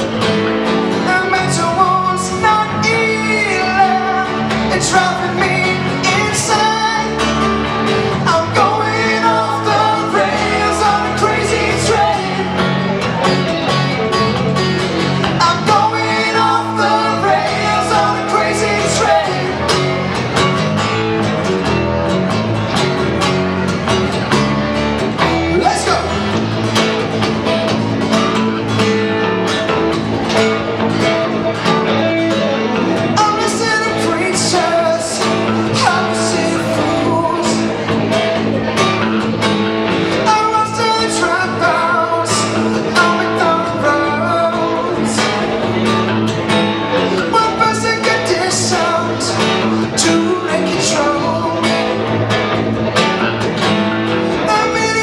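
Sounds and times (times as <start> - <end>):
country band playing: 0.0 - 55.0
person singing: 0.9 - 13.9, 15.2 - 20.4, 31.9 - 38.8, 40.1 - 46.0, 46.9 - 52.3, 54.3 - 55.0.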